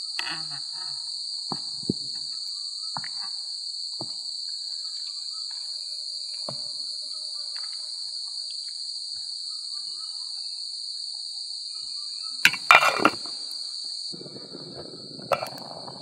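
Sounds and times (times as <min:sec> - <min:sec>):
insects droning: 0:00.0 - 0:16.0
metal lid clanking on pot: 0:12.5 - 0:13.3.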